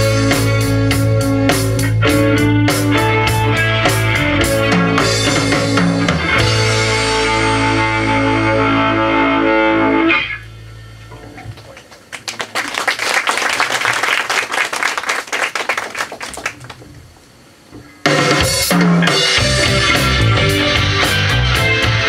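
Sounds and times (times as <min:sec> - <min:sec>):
drum kit with cymbals: 0:00.0 - 0:08.2, 0:17.9 - 0:22.0
rock band playing: 0:00.0 - 0:11.2, 0:18.0 - 0:22.0.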